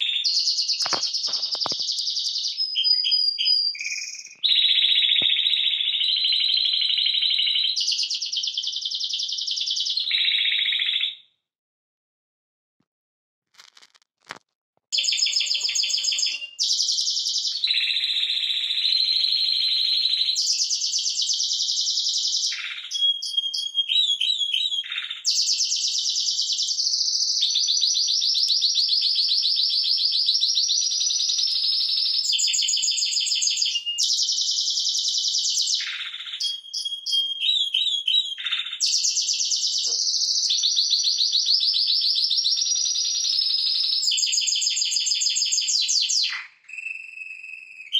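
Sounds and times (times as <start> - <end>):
canary singing trills: 0.0 - 11.2, 15.0 - 27.5, 31.5 - 40.7.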